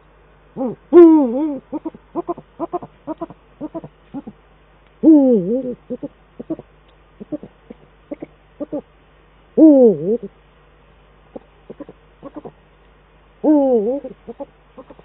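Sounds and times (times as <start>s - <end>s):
owl long wavering call: 0.5s - 4.4s, 5.0s - 8.9s, 9.6s - 10.4s, 11.3s - 12.6s, 13.4s - 15.0s
owl short hoots: 0.6s - 4.4s, 5.0s - 8.9s, 11.4s - 12.6s.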